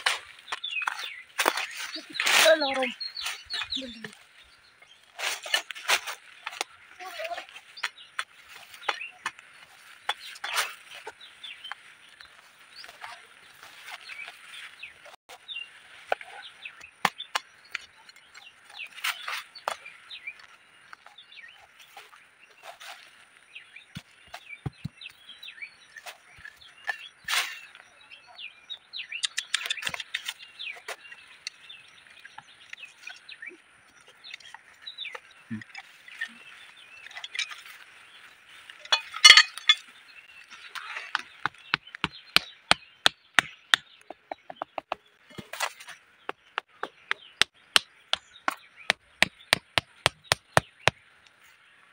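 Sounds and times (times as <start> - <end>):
birds calling: 0.0 - 51.9
machete chopping in dry soil: 16.9 - 17.9, 29.2 - 30.4, 40.7 - 51.1
hammer knocking stake into ground: 41.1 - 51.0.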